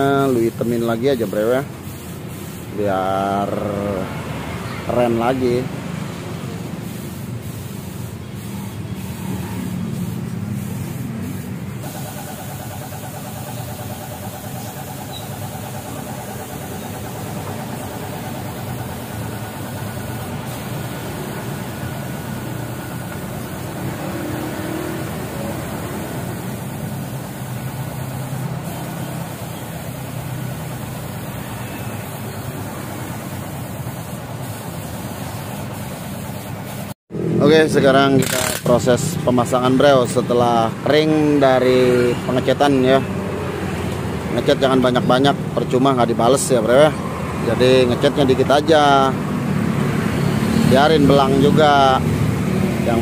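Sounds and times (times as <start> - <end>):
spray gun hissing: 0.0 - 3.8, 6.7 - 37.0.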